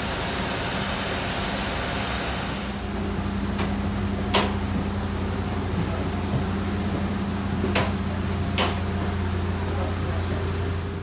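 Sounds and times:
footsteps on metal stairs: 3.6 - 9.1.

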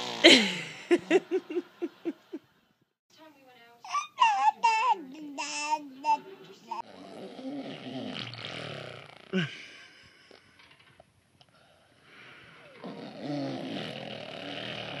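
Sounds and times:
baby babbling: 3.8 - 6.8.

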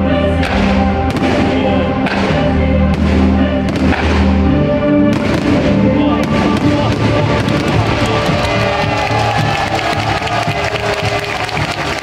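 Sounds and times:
loud music: 0.0 - 12.0
fireworks bursting: 5.1 - 11.9.

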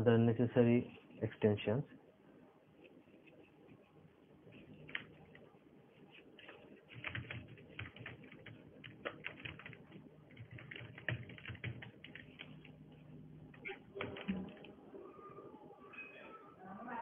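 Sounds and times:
keyboard typing clicks: 13.5 - 14.8.

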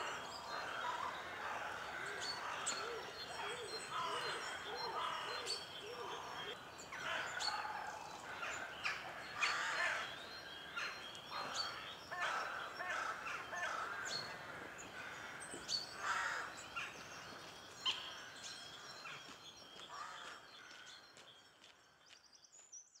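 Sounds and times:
songbirds singing and calling: 0.0 - 23.0.

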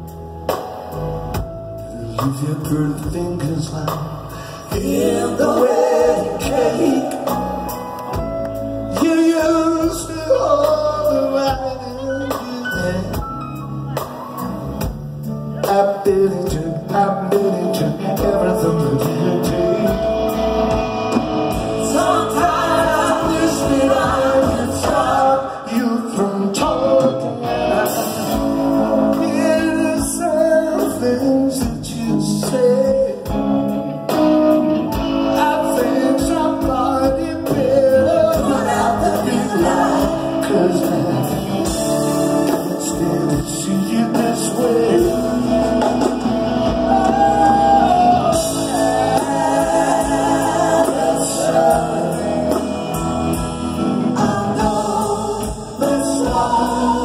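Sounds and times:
live rock band playing ballad: 0.0 - 57.0
man singing lead: 1.8 - 7.7, 8.9 - 13.6, 15.5 - 20.6, 21.5 - 33.5, 34.9 - 57.0
women backing singers: 4.7 - 7.8, 21.6 - 29.4, 37.5 - 40.6, 45.2 - 53.3, 53.9 - 57.0.

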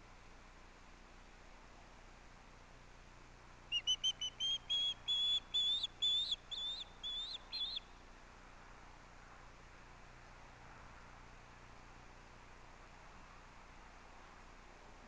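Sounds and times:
bird whistled chirps: 3.7 - 7.9.

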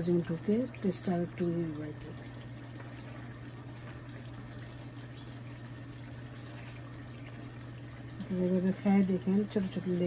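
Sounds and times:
constant low hum: 0.0 - 10.0
sauce simmering in a pan: 0.0 - 10.0.

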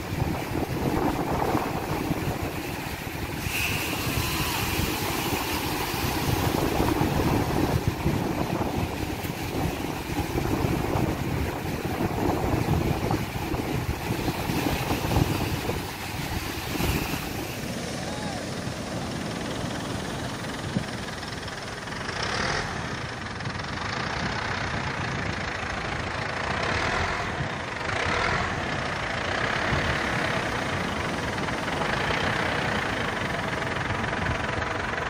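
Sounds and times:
surf washing up beach: 0.0 - 22.1
wind noise on microphone: 0.0 - 35.0.

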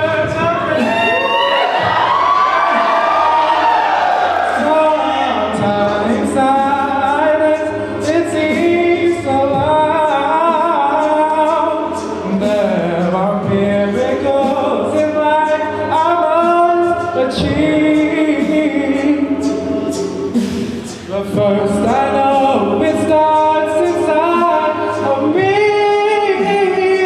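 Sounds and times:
man singing lead into microphone: 0.0 - 3.7, 4.4 - 27.0
mixed choir singing a cappella: 18.4 - 20.8.

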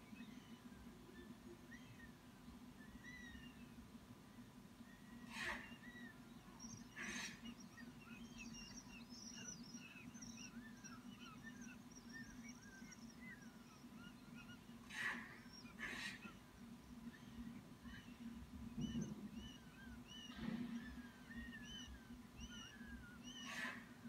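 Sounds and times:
small birds chirping: 0.0 - 24.0
steady low hum: 0.0 - 24.0
hawk nestlings squealing: 5.2 - 18.2, 18.8 - 24.0.

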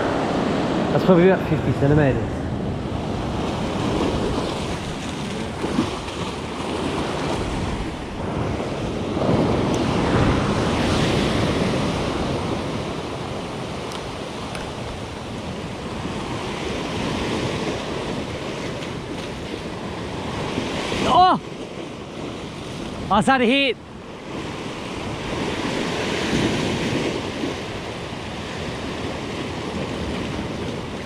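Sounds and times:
ocean swell washing over rock: 0.0 - 31.0
wind buffeting microphone: 0.0 - 31.0.

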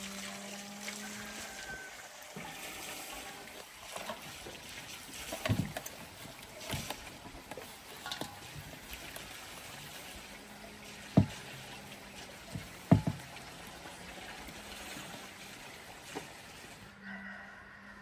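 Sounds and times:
water sloshing in a basin: 0.0 - 17.0
sharp knocks: 12.9 - 13.2.

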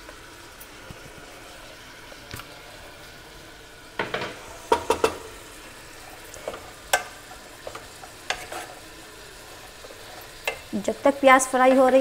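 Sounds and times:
food sizzling in oil: 0.0 - 12.0
food pieces clattering in pan: 6.4 - 8.8.

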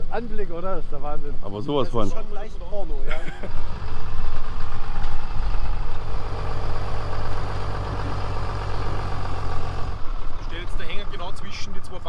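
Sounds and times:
large vehicle engine idling: 3.2 - 12.0.

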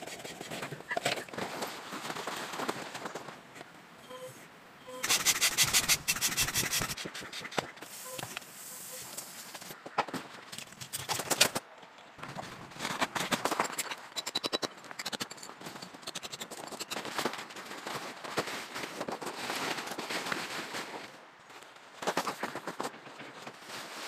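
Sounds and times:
tent rustling and scraping on gravel: 0.0 - 3.6, 12.2 - 14.0, 16.9 - 24.0.

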